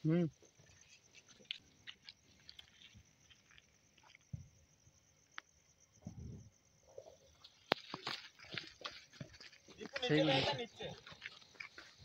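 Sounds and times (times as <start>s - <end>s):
footsteps on dirt: 7.4s - 12.0s.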